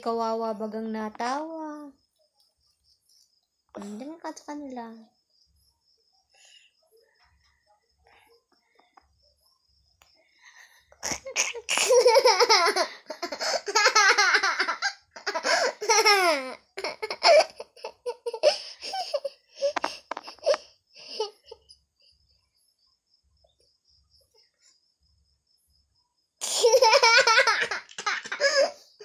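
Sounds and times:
child laughing: 0:11.1 - 0:21.7, 0:26.4 - 0:28.9.

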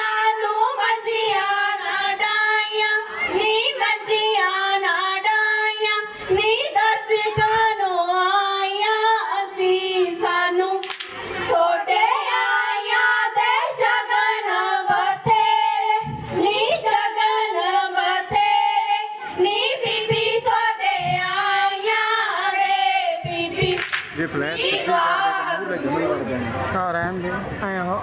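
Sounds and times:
girls singing: 0:00.0 - 0:25.9
sharp hand claps: 0:10.8 - 0:11.2, 0:23.6 - 0:24.3.

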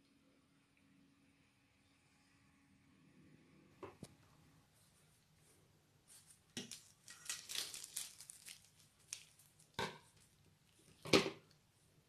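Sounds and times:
plastic bag crinkling: 0:06.6 - 0:11.0.

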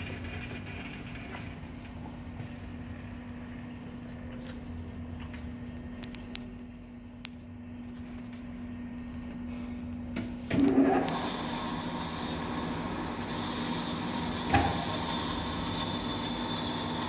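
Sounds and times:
lathe spindle whining: 0:10.6 - 0:17.0.

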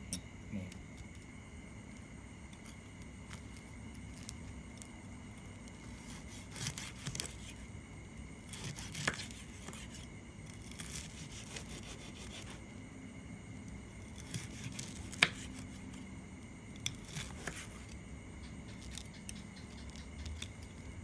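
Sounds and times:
steady low hum: 0:00.0 - 0:21.0
knife cutting crispy pork skin: 0:05.7 - 0:07.6, 0:08.4 - 0:12.6, 0:14.0 - 0:16.1, 0:16.7 - 0:18.0.

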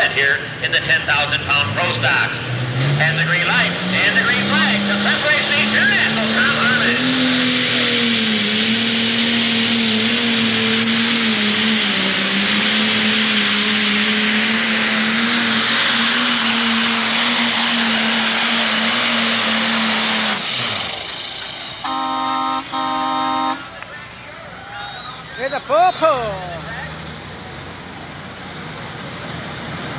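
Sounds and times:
diesel engine at full throttle: 0:00.0 - 0:29.9
horn short blasts: 0:21.8 - 0:23.8.

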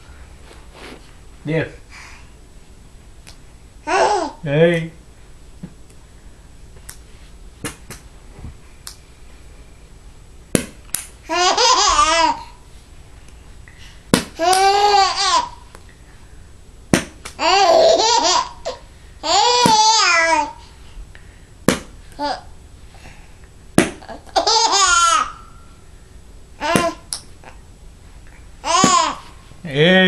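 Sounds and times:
baby laughing: 0:03.9 - 0:04.4, 0:11.3 - 0:12.6, 0:14.4 - 0:15.6, 0:17.4 - 0:20.6, 0:24.0 - 0:25.4, 0:28.6 - 0:29.3.

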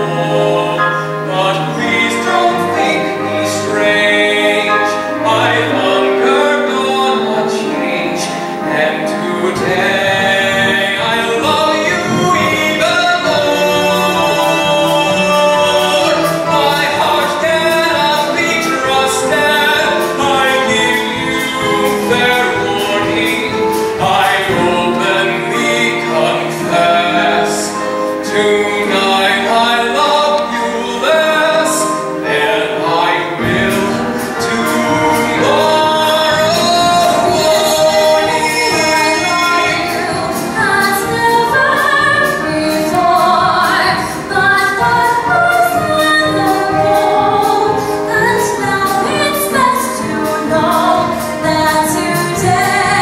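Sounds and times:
man singing a ballad: 0:00.0 - 0:42.9
instrumental accompaniment: 0:00.0 - 0:53.0.

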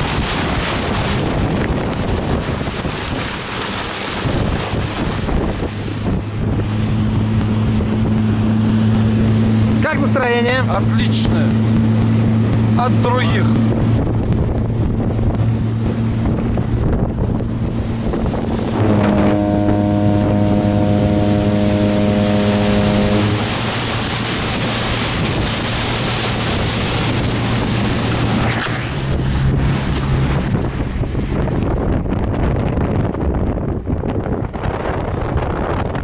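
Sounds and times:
outboard motor running: 0:00.0 - 0:36.0
wind buffeting microphone: 0:00.0 - 0:36.0
high whine: 0:04.4 - 0:32.4.

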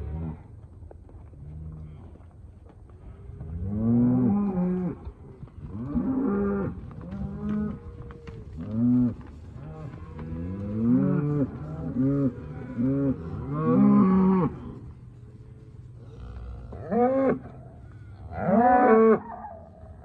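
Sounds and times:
cows mooing: 0:05.7 - 0:14.9, 0:16.0 - 0:19.6.

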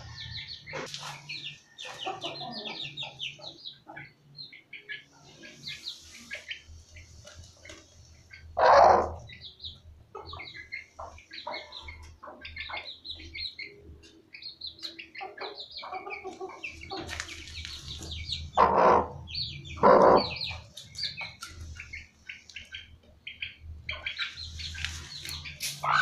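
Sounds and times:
hen harsh calls: 0:18.5 - 0:20.6, 0:25.6 - 0:26.0.

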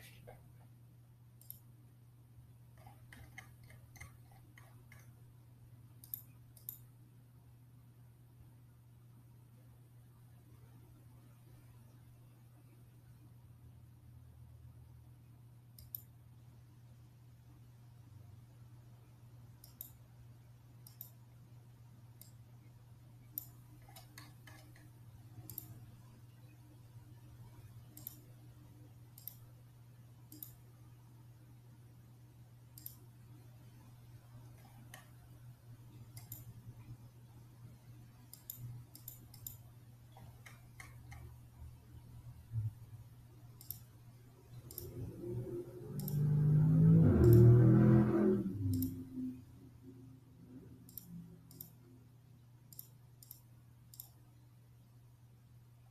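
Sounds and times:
low steady hum: 0:00.0 - 0:55.9
computer mouse clicks: 0:01.4 - 0:01.7, 0:02.8 - 0:05.1, 0:06.0 - 0:06.9, 0:15.8 - 0:16.1, 0:19.6 - 0:20.0, 0:20.8 - 0:21.2, 0:22.2 - 0:22.4, 0:23.2 - 0:25.9, 0:27.5 - 0:28.4, 0:29.1 - 0:29.5, 0:30.3 - 0:30.6, 0:32.8 - 0:33.1, 0:34.5 - 0:35.3, 0:36.0 - 0:36.9, 0:38.2 - 0:41.4, 0:43.6 - 0:43.9, 0:44.5 - 0:49.2, 0:50.8 - 0:51.9, 0:52.7 - 0:54.2.

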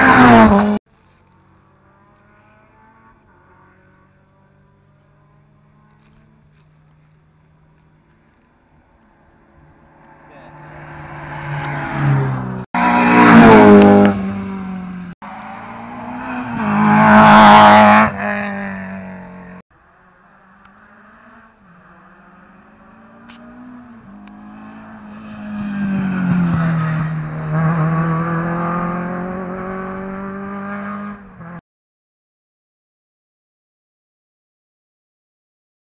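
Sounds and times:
engine passing by: 0:00.0 - 0:31.6
rally car engines revving: 0:00.0 - 0:31.6.

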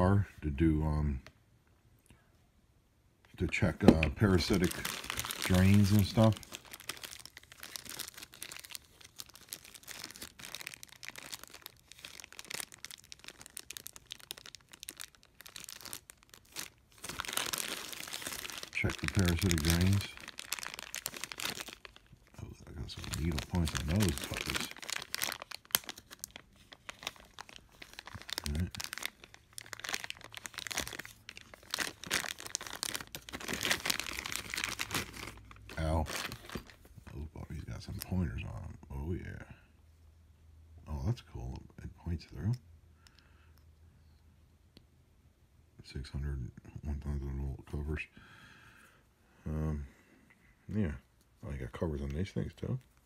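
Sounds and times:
plastic bag crinkling: 0:03.8 - 0:37.2.

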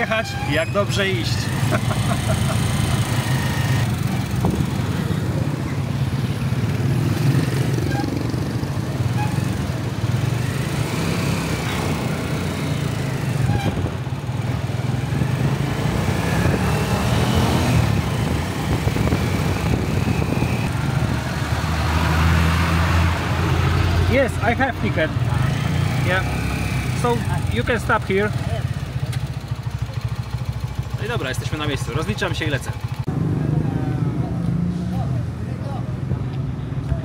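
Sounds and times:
road noise: 0:00.0 - 0:37.0
motorcycle engine running: 0:01.4 - 0:21.1, 0:25.2 - 0:33.7.

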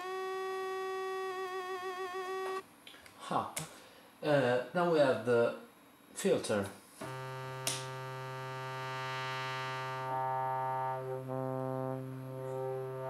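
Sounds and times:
buzzy organ-like keyboard drone: 0:00.0 - 0:02.6, 0:07.0 - 0:13.0.

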